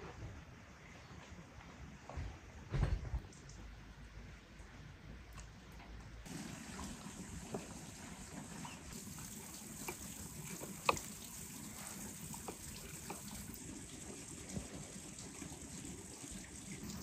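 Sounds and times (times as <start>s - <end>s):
running water trickle: 4.6s - 17.0s.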